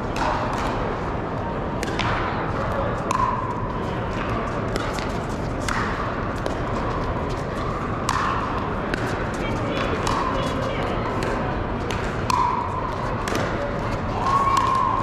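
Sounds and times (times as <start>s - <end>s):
crowd chatter: 0.0s - 15.0s
paddles hitting plastic balls: 3.1s - 3.4s, 8.0s - 10.6s, 11.2s - 15.0s.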